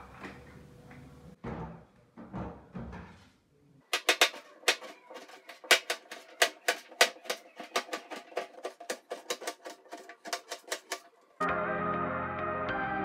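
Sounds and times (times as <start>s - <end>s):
knife chopping on countertop: 4.0s - 11.0s.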